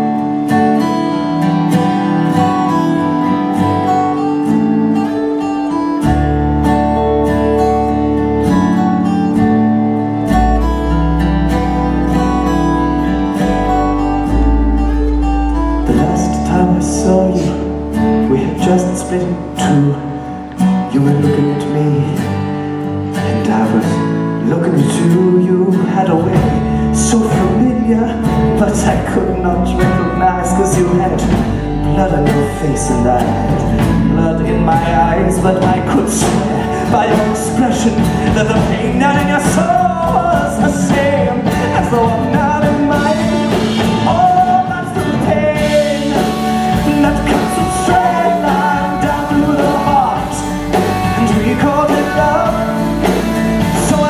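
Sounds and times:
bass guitar: 0.0 - 54.0
drums: 0.0 - 54.0
live rock band playing: 0.0 - 54.0
person singing: 11.6 - 22.4, 23.2 - 54.0.

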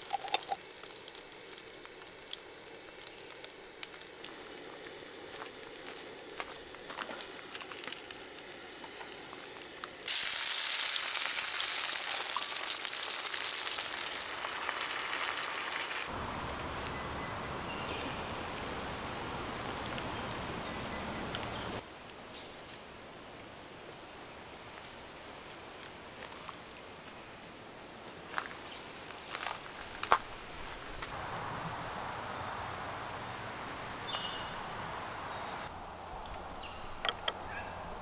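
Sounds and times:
food sizzling in a frying pan: 0.0 - 6.9, 7.5 - 16.1.

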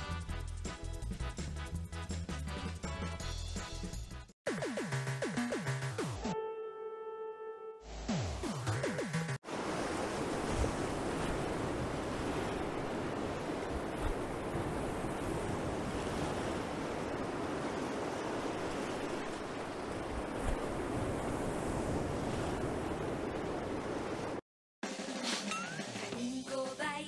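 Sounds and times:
waves breaking on a beach: 9.4 - 24.4.

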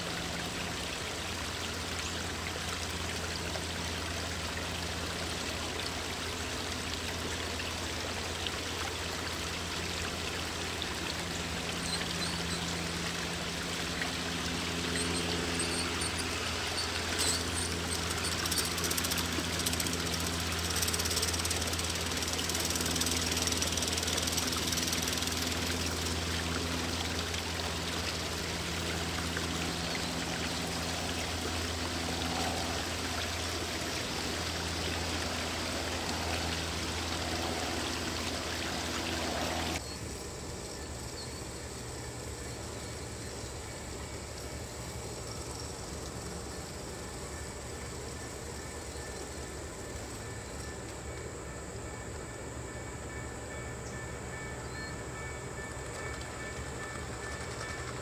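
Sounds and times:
low hum: 10.5 - 39.8
model train wheels rolling: 15.6 - 26.2.

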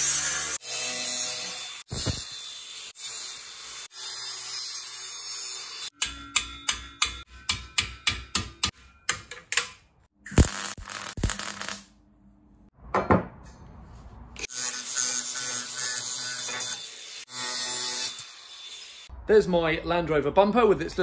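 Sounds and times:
angle grinder grinding steel: 0.0 - 6.2, 14.4 - 19.1.

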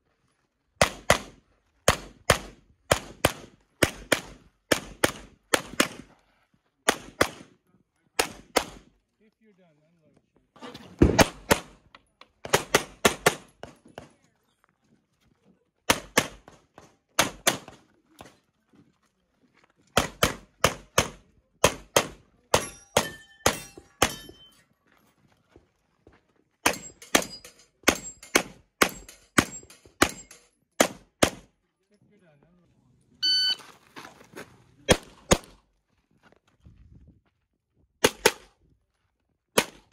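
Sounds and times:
high metallic ring: 22.6 - 24.6
handgun shots: 26.6 - 31.5, 38.0 - 38.5, 39.6 - 39.9.

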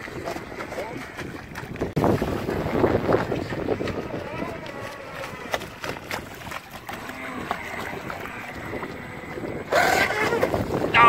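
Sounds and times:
choppy water: 0.0 - 11.0
rush of water with whine: 0.0 - 11.0
wind buffeting microphone: 0.0 - 11.0
electric model speedboat running: 2.2 - 11.0.

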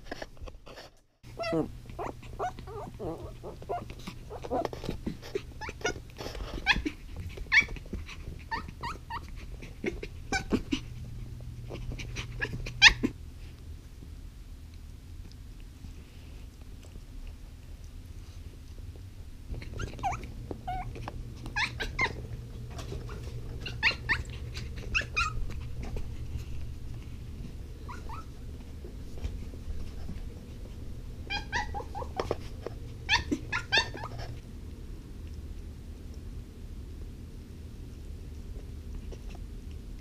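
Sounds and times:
steady low hum: 0.0 - 40.0
puppy whining: 1.3 - 13.2, 19.5 - 34.4.

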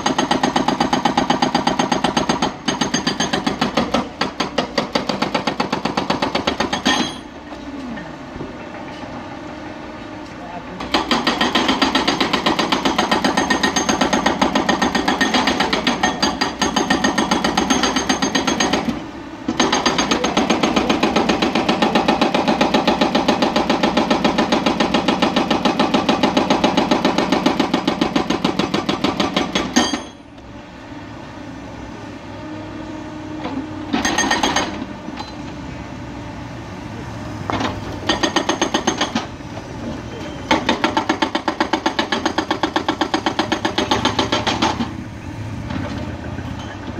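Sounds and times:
hydraulic rock breaker hammering: 0.0 - 7.6, 10.8 - 30.4, 33.4 - 35.5, 37.4 - 39.6, 40.2 - 45.0
excavator engine running: 7.3 - 46.9.

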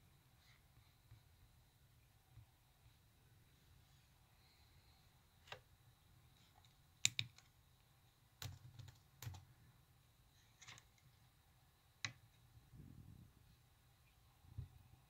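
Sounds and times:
background hiss: 0.0 - 15.0
laptop keyboard key clicks: 7.0 - 7.4.

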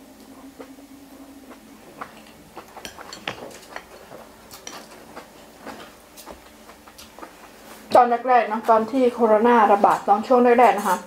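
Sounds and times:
cutlery clinking on glass bowl: 2.8 - 5.0.

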